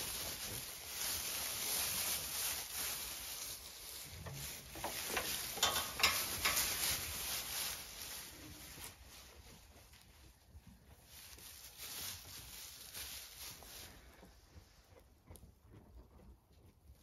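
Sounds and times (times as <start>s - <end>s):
straw crackles: 0.0s - 9.9s
straw rustling underfoot: 0.0s - 15.3s.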